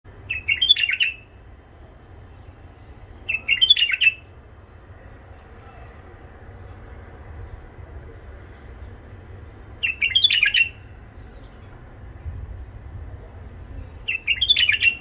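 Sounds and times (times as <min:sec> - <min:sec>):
bulbul singing: 0:00.1 - 0:05.6, 0:06.5 - 0:11.8, 0:13.8 - 0:15.0.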